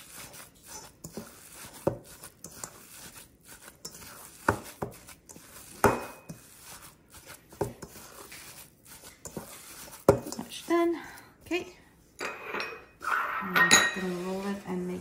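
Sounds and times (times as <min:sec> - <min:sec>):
hands squishing meat mixture: 0:00.0 - 0:11.7.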